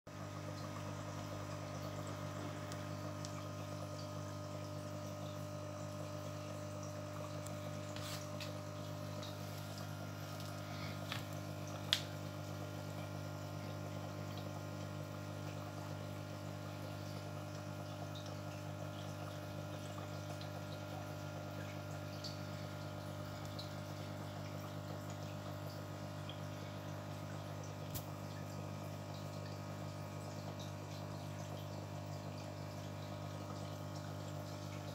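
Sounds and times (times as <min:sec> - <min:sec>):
aquarium water bubbling: 0:00.1 - 0:34.9.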